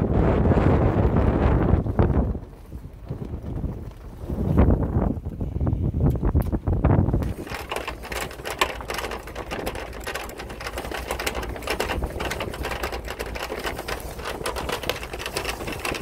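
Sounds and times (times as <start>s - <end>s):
low steady rumble: 0.0s - 16.0s
mechanical rattling: 7.2s - 16.0s.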